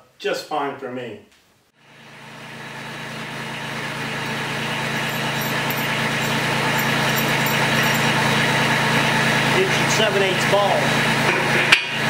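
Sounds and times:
machine droning: 1.8s - 11.4s.

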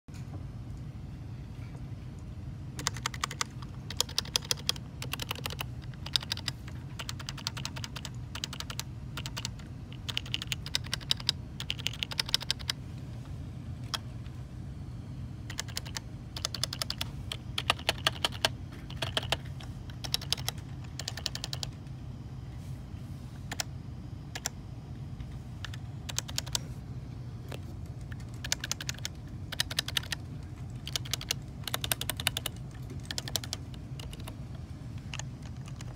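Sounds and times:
low steady hum: 0.1s - 35.9s
keyboard keystrokes: 2.8s - 12.8s, 15.5s - 21.8s, 25.6s - 26.6s, 27.5s - 34.4s.

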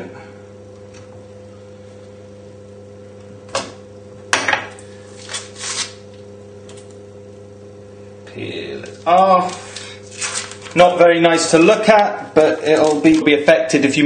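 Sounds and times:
electrical mains hum: 0.0s - 14.0s
packaging crinkling: 8.9s - 10.8s, 12.5s - 13.4s.

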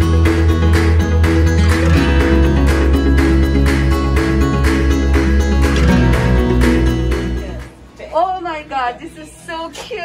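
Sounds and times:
strummed acoustic guitar: 0.0s - 7.6s
regular beat: 0.0s - 7.9s
steady bass line: 0.0s - 8.0s.

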